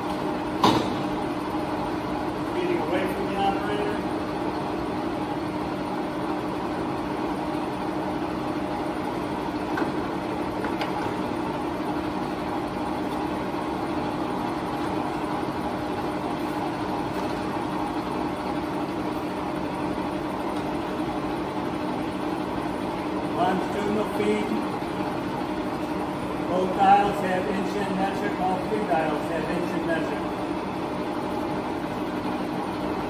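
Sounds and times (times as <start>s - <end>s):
lathe motor humming: 0.0s - 33.0s.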